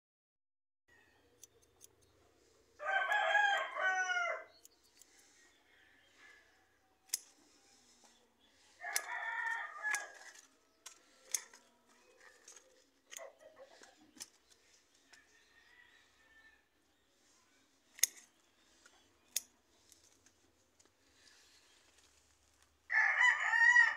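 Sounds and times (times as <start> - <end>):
rooster crowing: 2.8 - 4.5, 8.8 - 10.4, 15.2 - 16.7, 22.9 - 23.9
sharp clicks: 7.1 - 7.5, 8.9 - 11.7, 17.9 - 20.3.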